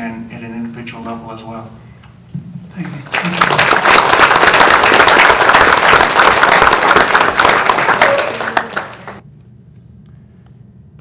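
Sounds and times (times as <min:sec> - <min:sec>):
audience applauding: 0:02.8 - 0:09.2.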